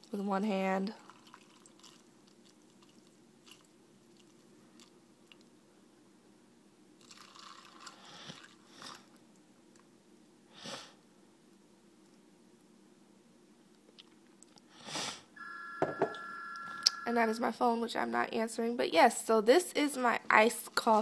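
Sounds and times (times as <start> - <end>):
faint steady hum: 0.0 - 21.0
coffee pouring: 1.0 - 4.9, 7.0 - 8.6.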